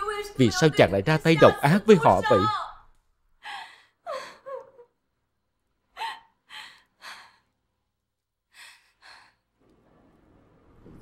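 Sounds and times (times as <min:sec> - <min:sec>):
woman sobbing: 0:01.4 - 0:02.7, 0:03.4 - 0:05.0.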